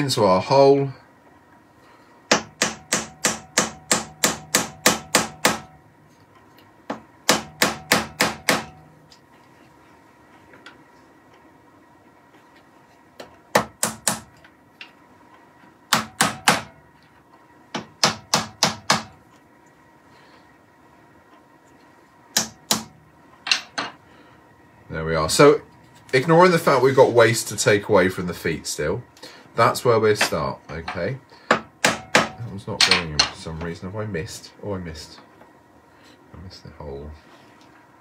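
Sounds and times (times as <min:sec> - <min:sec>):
hammer tapping wood: 0:17.8 - 0:19.1.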